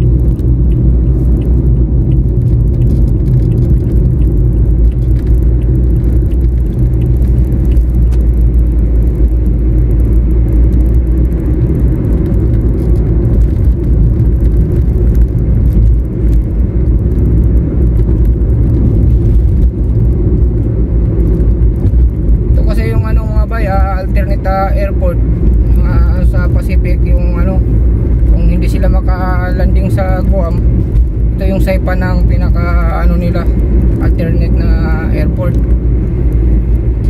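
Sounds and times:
car interior road rumble: 0.0 - 37.0.

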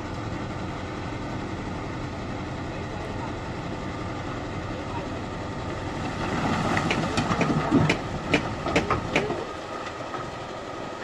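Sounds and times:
truck engine running: 0.0 - 11.0.

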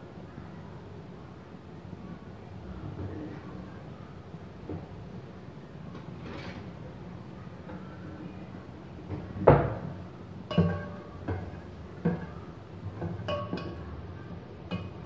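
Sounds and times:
low steady hum: 6.8 - 15.0.

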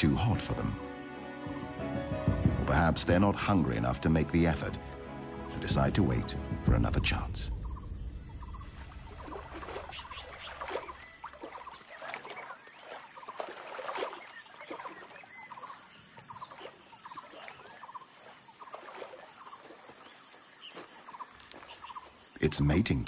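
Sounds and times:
hooves splashing through water: 1.4 - 23.0
bird calls and chatter: 6.8 - 23.0.

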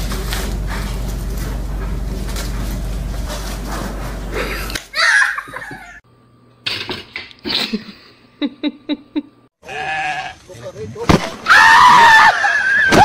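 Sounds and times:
person laughing: 4.3 - 6.0, 7.4 - 9.4, 11.9 - 13.0
loud high-pitched cry: 11.5 - 13.0.

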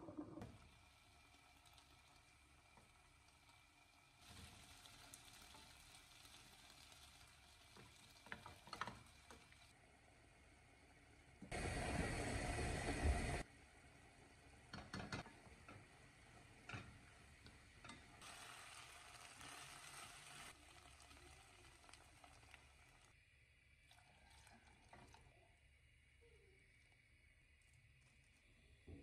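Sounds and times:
chicken hissing in a frying pan: 18.2 - 23.2.

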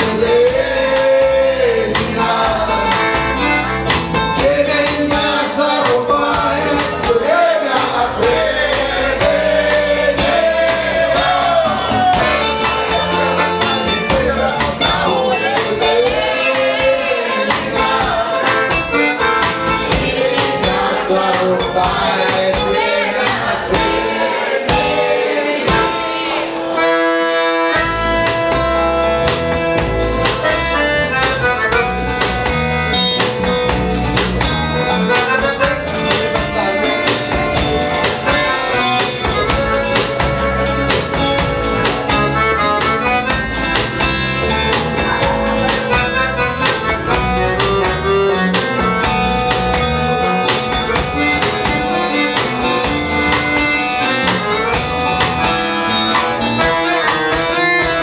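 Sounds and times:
button accordion: 0.0 - 58.0
drum kit: 0.0 - 58.0
guitar: 0.0 - 58.0.

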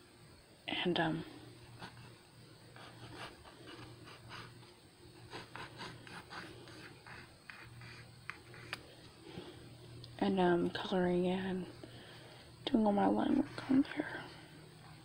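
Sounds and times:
pencil scratching on paper: 2.8 - 4.6, 5.3 - 8.8.

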